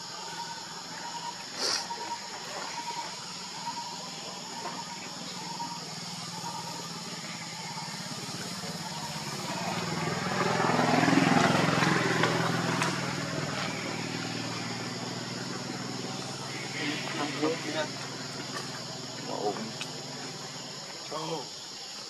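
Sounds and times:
vehicle engine passing by: 4.2s - 20.8s.

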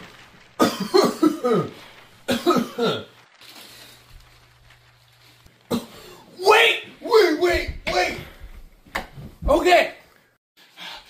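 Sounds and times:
people coughing: 0.6s - 3.1s, 5.7s - 6.2s.

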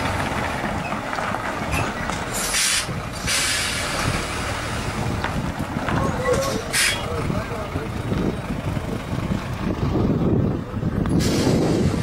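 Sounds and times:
truck diesel engine running: 0.0s - 12.0s
air brakes hissing: 2.3s - 4.4s, 6.4s - 7.1s, 11.1s - 12.0s.

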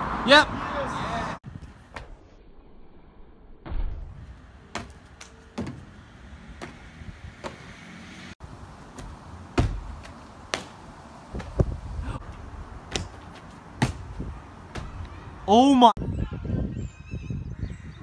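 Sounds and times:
shoes thumping on concrete: 4.7s - 5.9s, 6.6s - 7.7s, 8.8s - 15.2s.

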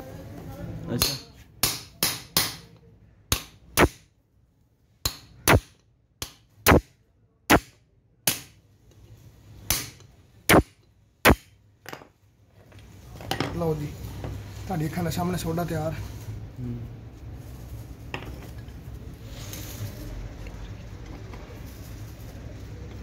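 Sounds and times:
hammer striking metal punch: 1.0s - 2.7s, 3.3s - 4.0s, 5.0s - 6.9s, 7.5s - 8.6s, 9.7s - 11.5s.

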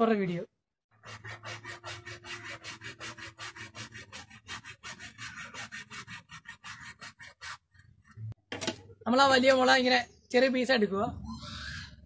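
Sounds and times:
blade scraping bamboo pole: 0.9s - 8.3s.

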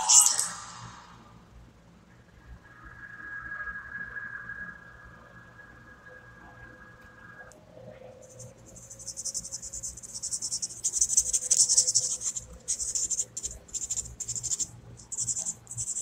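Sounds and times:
marker pen scrawling on paper: 8.3s - 16.0s.

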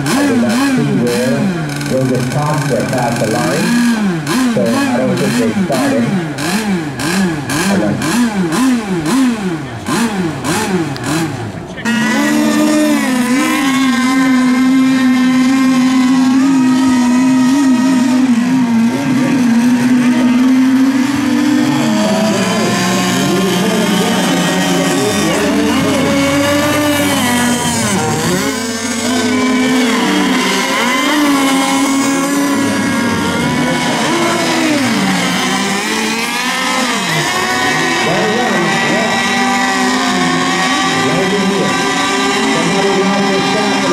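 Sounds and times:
model boat engines whining: 0.0s - 43.9s.

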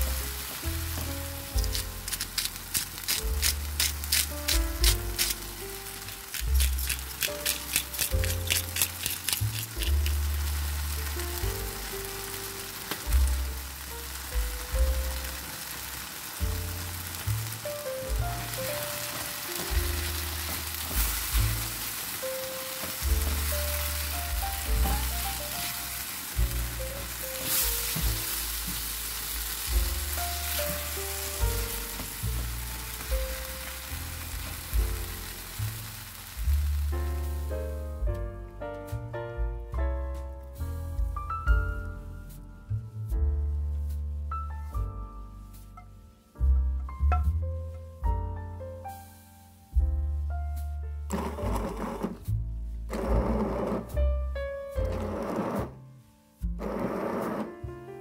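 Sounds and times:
vegetables sizzling in a frying pan: 0.0s - 37.6s, 49.0s - 49.3s
background music with bass line: 0.0s - 58.0s.

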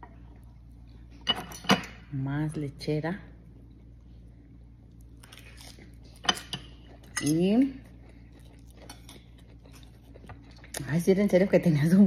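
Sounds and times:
cutlery clinking against plate: 1.3s - 1.9s, 6.2s - 7.4s.

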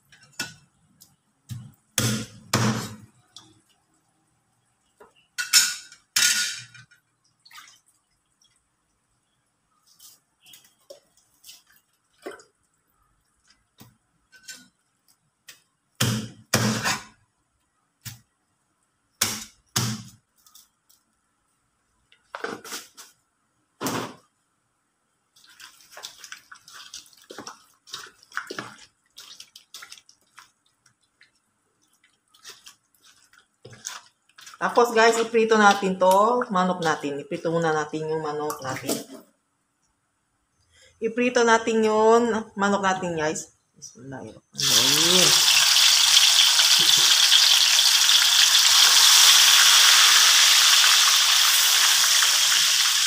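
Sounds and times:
wet squelches of meat mixed by hand: 25.4s - 35.9s.

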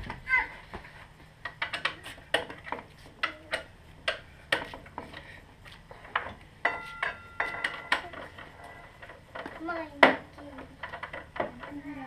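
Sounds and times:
metal tools clicking and tapping: 1.4s - 5.2s, 6.0s - 12.0s
ringing metallic clinks: 6.6s - 8.1s.

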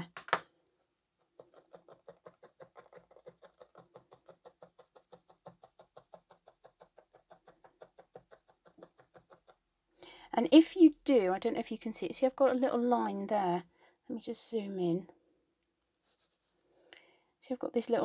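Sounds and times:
felting needles ticking into wool: 1.4s - 9.6s.

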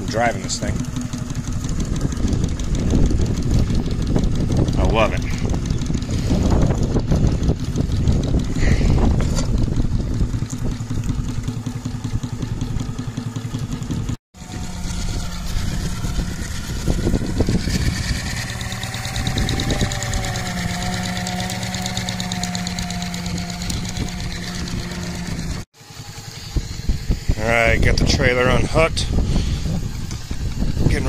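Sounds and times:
faint held whine: 0.0s - 31.0s
model steam engine running: 14.4s - 31.0s.

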